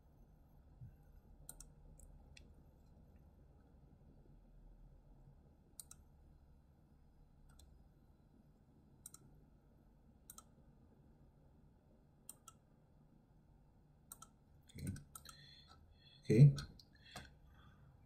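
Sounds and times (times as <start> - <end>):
low room hum: 0.0 - 18.0
computer mouse clicks: 1.4 - 2.5, 5.8 - 6.1, 7.5 - 7.8, 9.0 - 9.3, 10.2 - 10.6, 12.3 - 12.6, 14.1 - 15.5.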